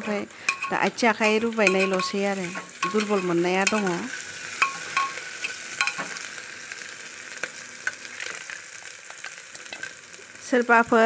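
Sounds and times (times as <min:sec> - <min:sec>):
onions and tomatoes sizzling: 0:00.0 - 0:11.0
metal spoon scraping a pot: 0:00.4 - 0:06.1.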